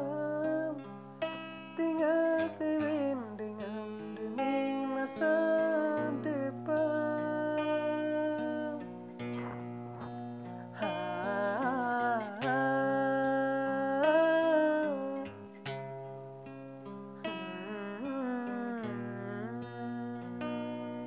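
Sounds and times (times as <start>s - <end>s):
person singing wordless vowels: 0.0s - 1.0s, 1.7s - 15.5s, 17.2s - 21.0s
acoustic guitar: 0.0s - 21.0s
person humming: 10.8s - 15.3s, 17.3s - 20.4s.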